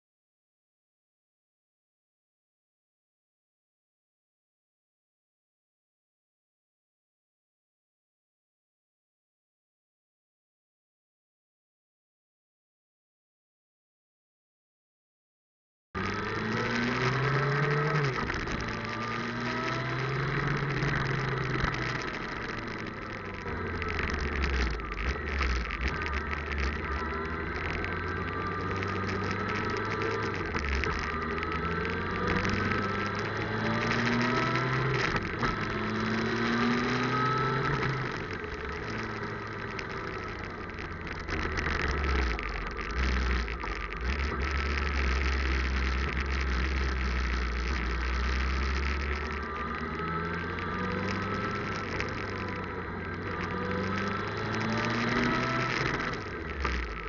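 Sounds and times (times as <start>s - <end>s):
motorcycle engine accelerating: 16.0s - 57.0s.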